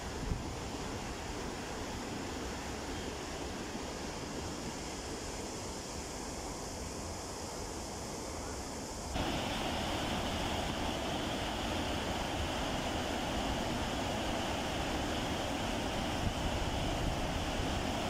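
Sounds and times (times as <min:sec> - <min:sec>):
wind on microphone: 0:00.0 - 0:01.6, 0:09.2 - 0:18.0
gently flowing river: 0:00.0 - 0:18.0
water rushing over a weir: 0:09.1 - 0:18.0.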